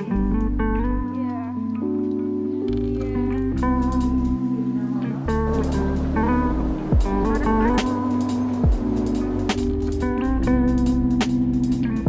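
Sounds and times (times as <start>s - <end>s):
soft music with bass line: 0.0s - 12.0s.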